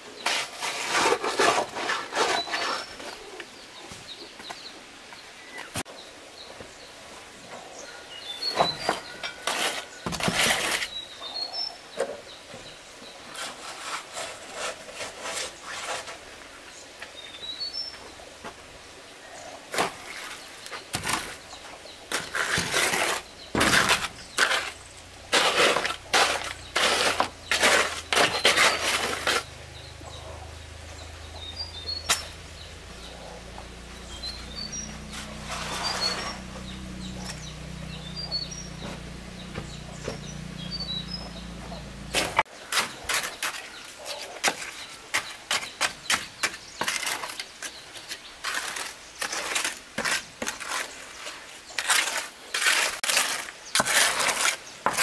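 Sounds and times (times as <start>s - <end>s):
shovel scraping wet concrete: 0.2s - 3.3s, 8.7s - 11.4s, 13.3s - 16.2s, 19.7s - 21.4s, 22.1s - 30.3s, 34.0s - 41.2s, 42.0s - 55.0s
trowel scraping wet concrete: 0.2s - 3.4s, 8.7s - 11.5s, 13.3s - 16.2s, 22.1s - 30.4s, 33.7s - 55.0s
bird chirps: 7.6s - 10.1s, 26.3s - 48.2s.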